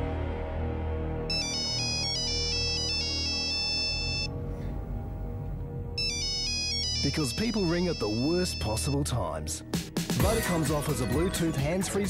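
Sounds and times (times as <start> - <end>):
background music: 0.0 - 12.0
phone ringtone beeping melody: 1.3 - 4.3, 6.0 - 9.1.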